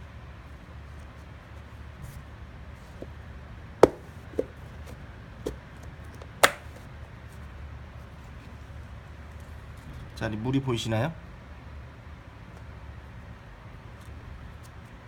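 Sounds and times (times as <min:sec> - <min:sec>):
plastic lid latches snapping shut: 0:06.2 - 0:06.8.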